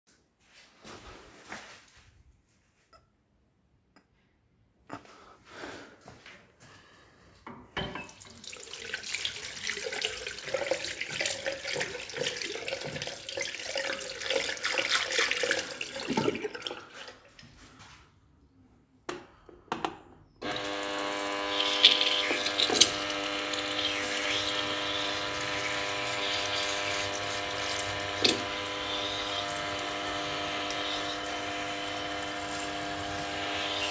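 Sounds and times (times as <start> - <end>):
tap running into sink: 7.5 - 16.6, 21.5 - 33.9
water heater humming: 7.8 - 17.6, 20.4 - 33.9
hands washing in water: 8.1 - 17.4, 21.5 - 33.9.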